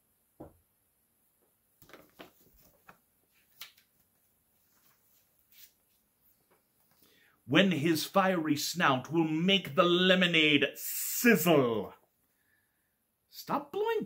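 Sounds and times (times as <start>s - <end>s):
paper book pages rustling: 1.8s - 7.0s.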